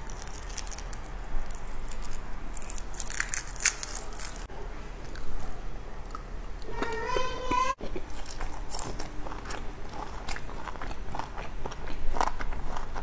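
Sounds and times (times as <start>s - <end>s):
food crackling and crinkling: 0.0s - 4.5s, 7.5s - 13.0s.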